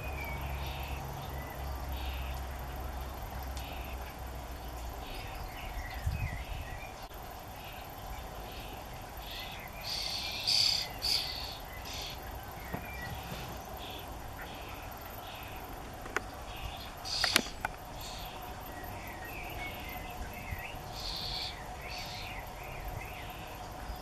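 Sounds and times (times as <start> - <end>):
young starlings begging calls: 5.0 - 24.0.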